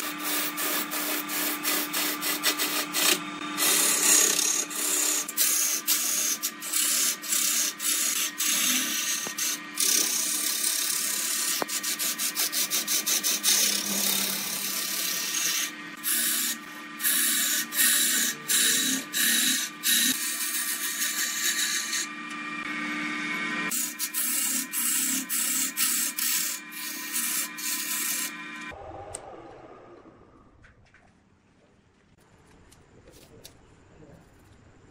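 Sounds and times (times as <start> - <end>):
lathe tool scraping wood: 0.0 - 28.8
steady low hum: 28.5 - 34.9.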